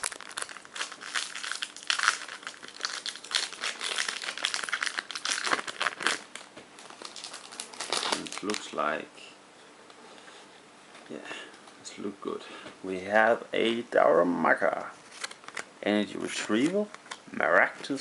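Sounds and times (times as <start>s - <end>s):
foil pack tearing: 0.0s - 8.8s
foil wrapper crinkling: 0.0s - 9.0s.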